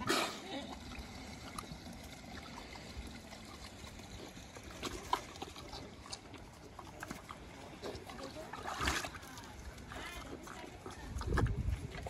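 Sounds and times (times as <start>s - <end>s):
pigs scuffing in dirt: 3.5s - 12.0s.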